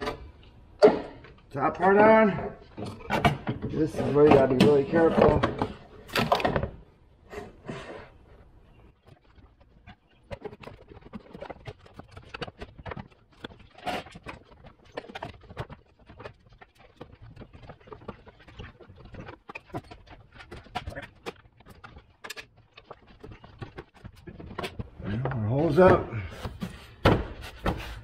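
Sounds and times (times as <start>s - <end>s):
clattering knocks and clicks: 8.9s - 28.0s.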